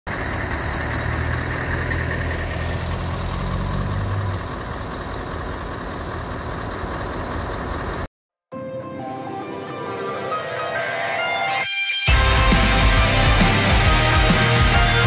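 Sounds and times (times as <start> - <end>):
vehicle engine rumbling: 0.1 - 8.1.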